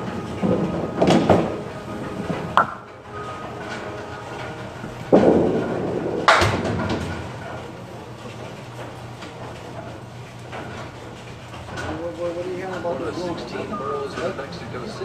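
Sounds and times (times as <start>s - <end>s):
bowling ball thudding on lane: 2.2s - 2.9s, 5.0s - 7.4s.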